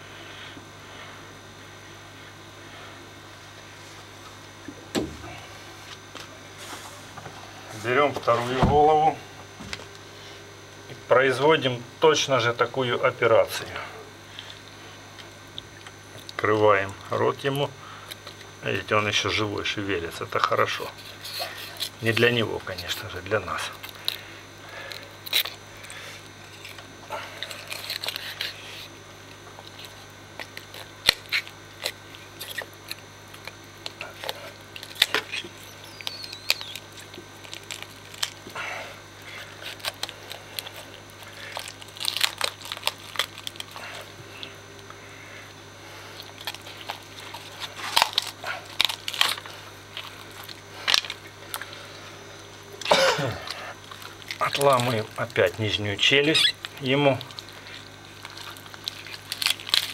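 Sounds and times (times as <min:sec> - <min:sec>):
steady low hum: 0:00.0 - 0:59.9
knife crunching and scraping bone: 0:20.8 - 0:38.6, 0:39.2 - 0:44.6, 0:46.1 - 0:51.7, 0:52.8 - 0:59.9.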